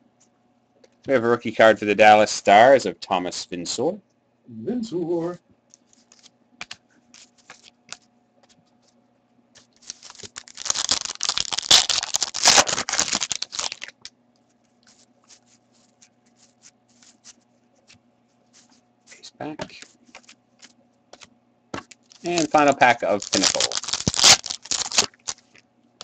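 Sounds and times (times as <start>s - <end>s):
cards being handled: 5.7s - 9.0s, 9.6s - 14.1s, 14.8s - 25.6s
foil wrapper tearing and crinkling: 7.2s - 8.0s, 9.6s - 14.1s, 21.9s - 25.6s.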